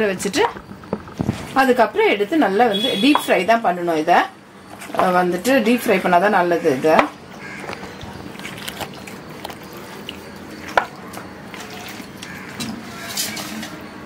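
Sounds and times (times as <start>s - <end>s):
wet squelching of hand mixing: 4.7s - 13.9s.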